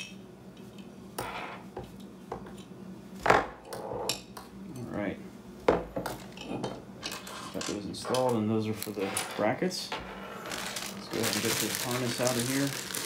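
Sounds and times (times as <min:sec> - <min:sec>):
rustling and scraping: 0:08.8 - 0:13.0.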